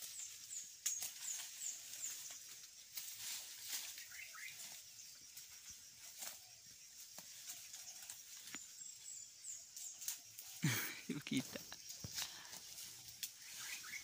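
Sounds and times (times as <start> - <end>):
goat stepping in dry leaves: 0.0 - 5.0, 9.9 - 14.0
faint high bird chirps: 3.2 - 14.0.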